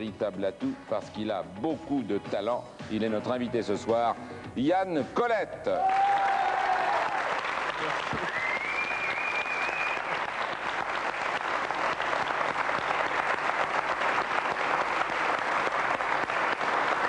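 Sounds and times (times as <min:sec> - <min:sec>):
audience applauding: 0:05.8 - 0:17.0.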